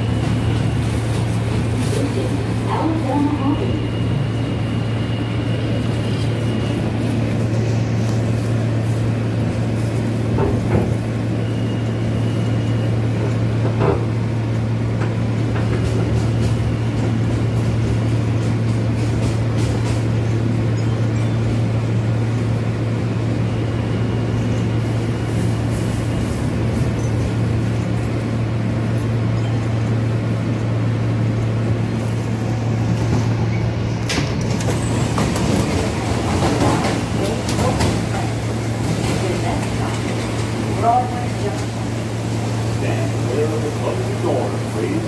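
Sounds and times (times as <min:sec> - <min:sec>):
rail clacks: 0:00.0 - 0:21.7, 0:32.6 - 0:45.0
subway train rumble: 0:00.0 - 0:45.0.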